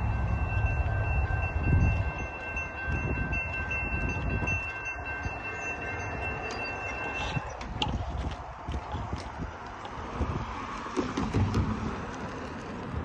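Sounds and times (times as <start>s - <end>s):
railroad crossing bell ringing: 0.0s - 7.6s
low train rumble: 0.0s - 13.0s.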